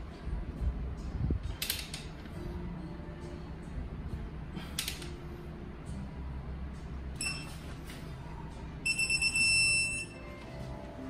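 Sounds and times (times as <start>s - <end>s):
torque wrench electronic beeps: 7.2s - 7.6s, 8.8s - 10.2s.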